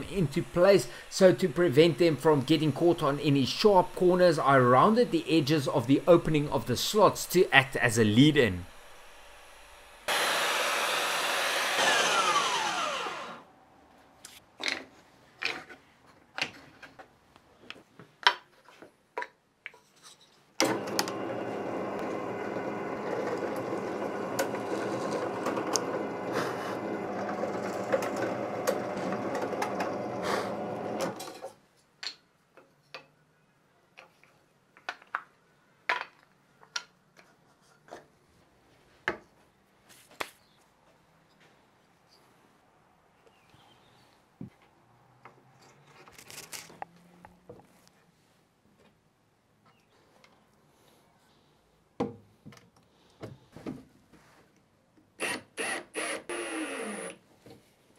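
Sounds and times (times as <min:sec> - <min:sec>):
belt sander winding down: 0:00.0 - 0:05.2, 0:08.6 - 0:13.5, 0:20.6 - 0:31.2, 0:55.3 - 0:57.2
drill press drilling into wood: 0:08.6 - 0:13.4, 0:20.6 - 0:31.2, 0:55.2 - 0:57.2.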